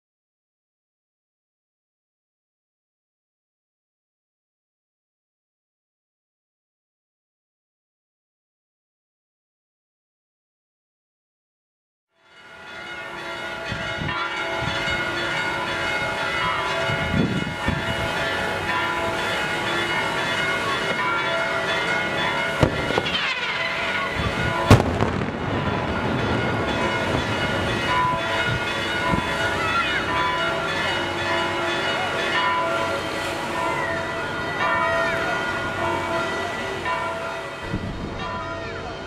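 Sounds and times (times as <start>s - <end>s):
church bells pealing: 12.2s - 39.0s
fireworks bangs: 22.5s - 28.7s.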